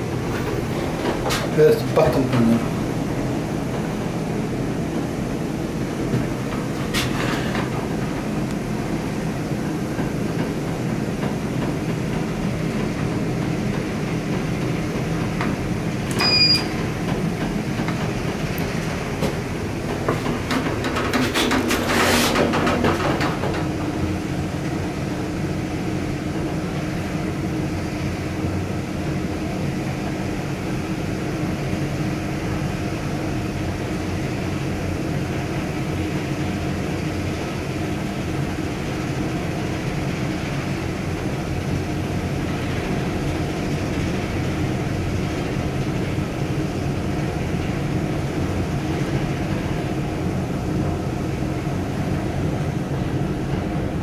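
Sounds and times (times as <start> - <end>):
steady low hum: 0.0 - 21.2
elevator machinery rumble: 0.0 - 54.0.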